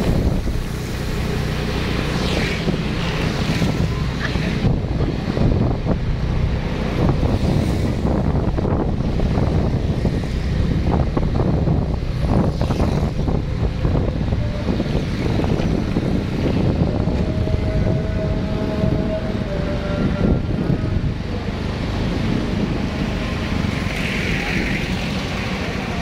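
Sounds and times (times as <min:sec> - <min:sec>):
wind rushing over microphone: 0:00.0 - 0:26.0.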